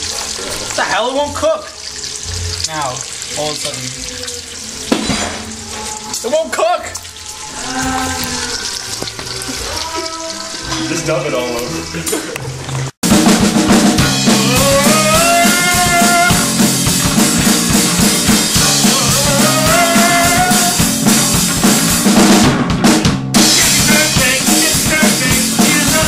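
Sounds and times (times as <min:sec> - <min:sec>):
drum kit beat: 0:04.8 - 0:05.8, 0:13.0 - 0:26.0
rock band playing live: 0:13.0 - 0:26.0.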